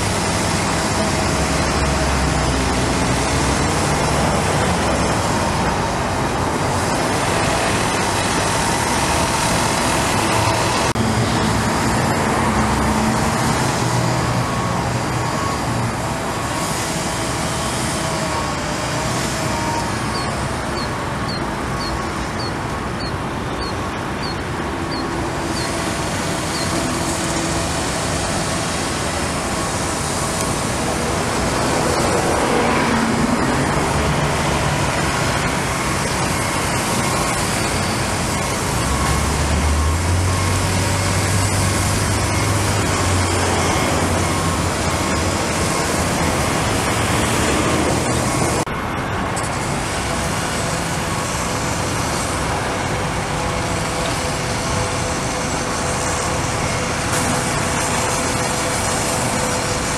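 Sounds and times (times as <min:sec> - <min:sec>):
excavator diesel engine working: 0:00.0 - 0:59.9
street traffic din: 0:00.0 - 0:59.9.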